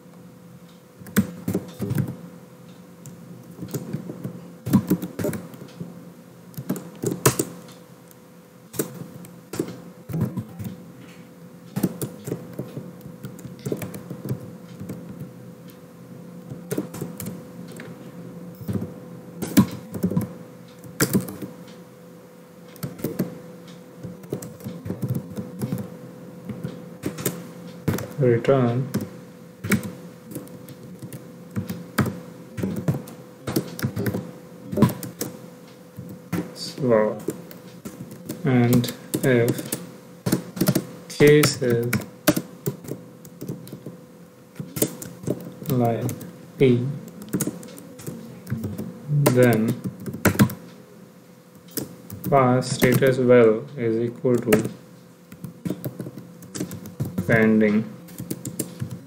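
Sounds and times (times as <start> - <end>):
faint steady hum: 0.0 - 59.0
computer keyboard typing: 1.0 - 2.2, 3.0 - 5.8, 6.5 - 7.6, 11.8 - 15.3, 19.5 - 21.6, 22.7 - 23.3, 24.0 - 25.9, 26.5 - 28.2, 28.9 - 35.4, 36.8 - 44.0, 44.6 - 46.3, 47.1 - 50.6, 51.6 - 53.2, 54.1 - 57.4, 58.1 - 59.0.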